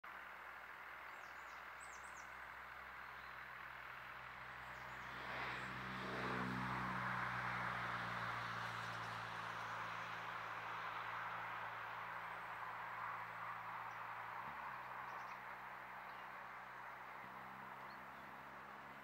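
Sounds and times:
outdoor background noise: 0:00.0 - 0:19.0
distant engine drone: 0:00.1 - 0:19.0.

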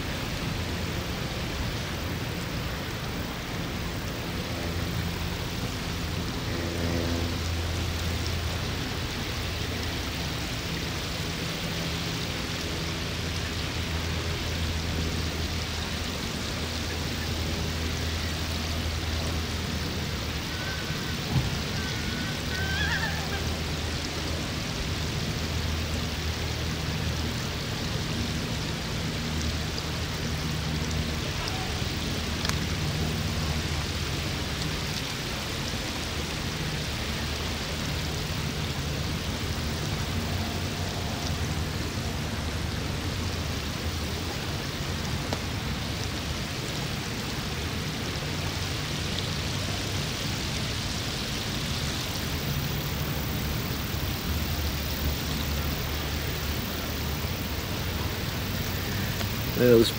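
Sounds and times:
even hiss: 0:00.0 - 0:59.9
low hum: 0:03.2 - 0:10.6.

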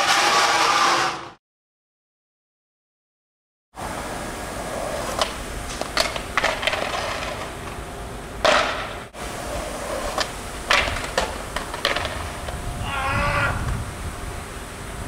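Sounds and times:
skateboard impact: 0:00.0 - 0:01.3, 0:04.6 - 0:07.8, 0:08.4 - 0:12.6
skateboard wheels rolling: 0:00.0 - 0:01.4, 0:03.8 - 0:15.0.

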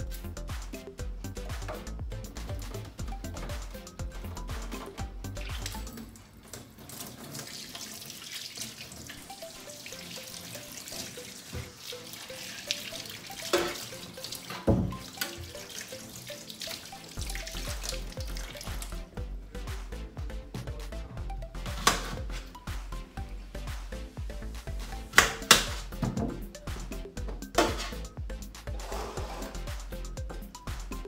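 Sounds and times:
tap water splashing in sink: 0:04.5 - 0:19.0, 0:24.9 - 0:28.0.

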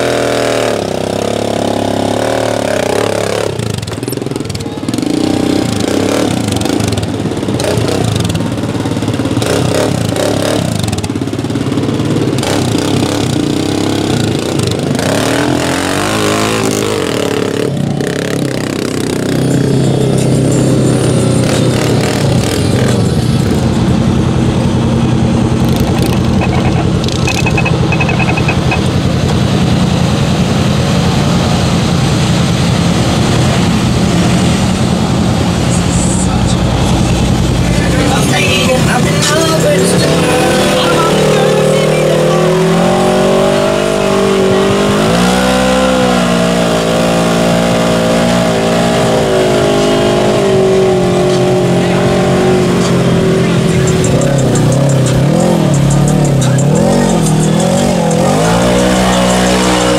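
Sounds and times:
atv engine revving: 0:00.0 - 0:59.9
engine drone: 0:00.0 - 0:59.9.

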